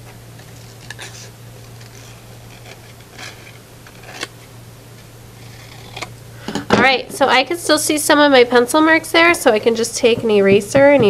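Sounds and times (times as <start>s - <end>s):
paper rustling: 0.4s - 4.5s.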